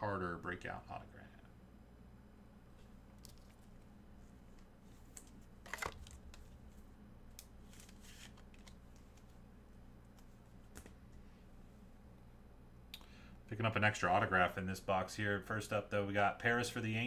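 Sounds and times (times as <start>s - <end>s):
low steady hum: 0.0s - 17.0s
cards and packaging rustling: 3.2s - 6.8s, 7.4s - 9.4s.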